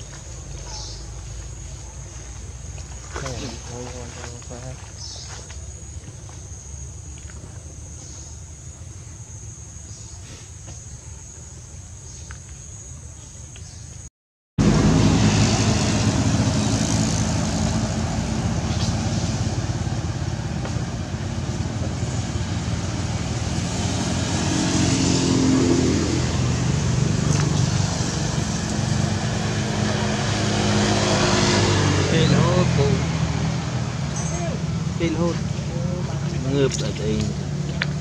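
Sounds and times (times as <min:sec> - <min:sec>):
vehicle engine drone: 0:00.0 - 0:10.0, 0:14.6 - 0:38.0
traffic hum: 0:00.0 - 0:38.0.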